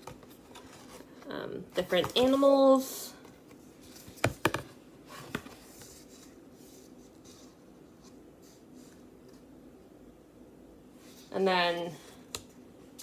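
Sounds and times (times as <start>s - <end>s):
cardboard pages tapping: 4.0s - 6.0s.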